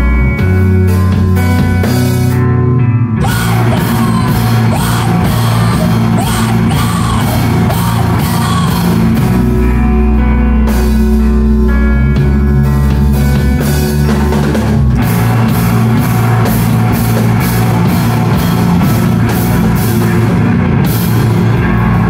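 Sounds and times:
live rock band playing: 0:00.0 - 0:22.0
person singing: 0:03.2 - 0:09.6.

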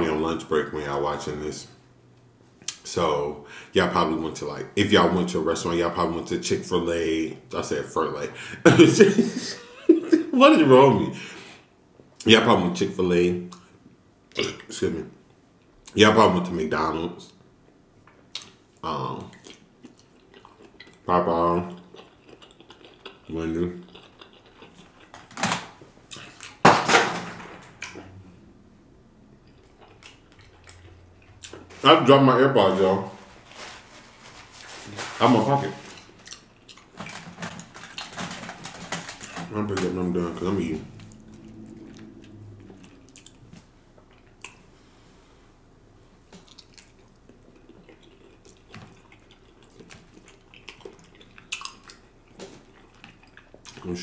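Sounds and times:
wet chewing: 0:19.3 - 0:21.1, 0:21.7 - 0:25.4, 0:29.4 - 0:31.7, 0:35.8 - 0:38.4, 0:40.9 - 0:44.6, 0:46.3 - 0:53.9.

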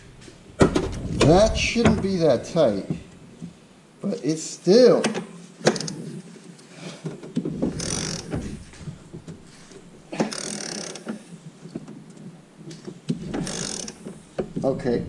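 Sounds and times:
ratchet wrench clicking: 0:07.8 - 0:08.3, 0:10.3 - 0:11.0, 0:13.4 - 0:14.0.

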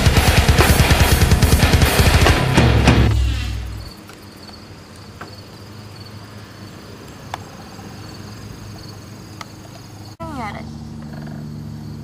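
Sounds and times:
music track: 0:00.0 - 0:03.9
crickets chirping: 0:03.2 - 0:12.0.

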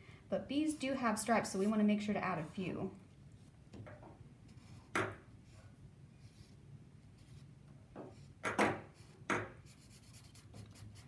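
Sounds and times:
marker scratching on paper: 0:08.9 - 0:11.0.

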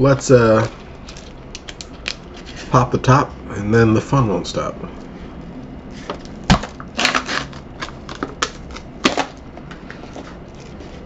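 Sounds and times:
foil seal tearing: 0:06.5 - 0:09.4.

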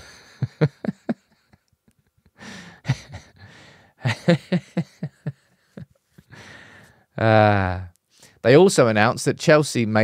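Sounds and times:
man laughing: 0:00.0 - 0:03.4, 0:04.0 - 0:06.0.

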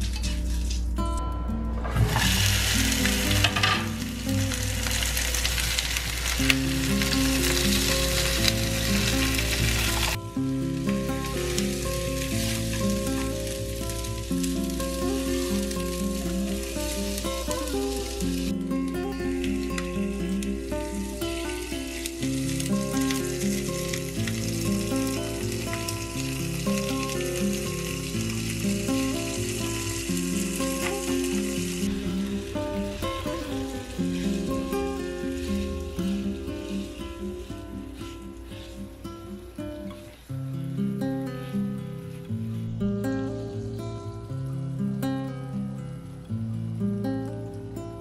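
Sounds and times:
soft background music: 0:00.0 - 0:48.0
vegetables sizzling in hot oil: 0:01.8 - 0:45.0
spatula stirring in frying pan: 0:11.1 - 0:18.5, 0:19.7 - 0:39.0.

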